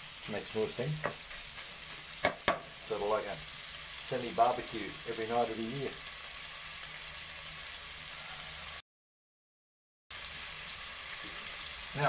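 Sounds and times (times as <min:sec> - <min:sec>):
meat sizzling in hot oil: 0:00.0 - 0:08.8, 0:10.1 - 0:12.0.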